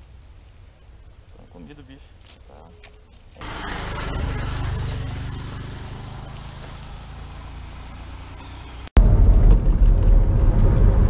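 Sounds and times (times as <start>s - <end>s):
tyres on wet road: 3.4s - 9.4s.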